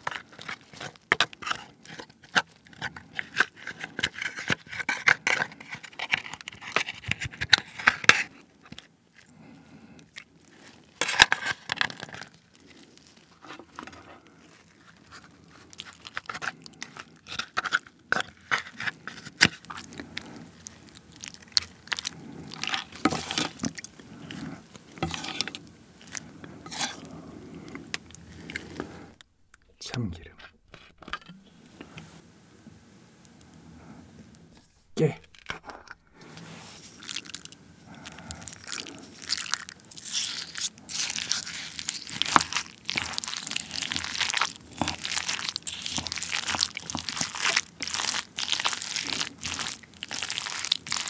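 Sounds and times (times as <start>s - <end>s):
wet squishing: 18.5s - 29.2s, 36.2s - 51.0s.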